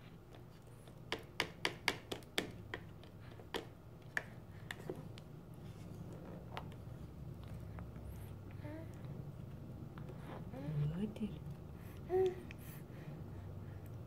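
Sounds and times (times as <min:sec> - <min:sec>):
plastic spoon tapping a plate: 0:01.1 - 0:02.9.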